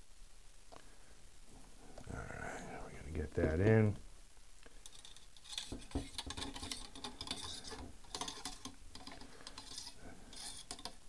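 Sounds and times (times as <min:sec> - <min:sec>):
cleaning rod scraping in tube: 0:04.9 - 0:11.0.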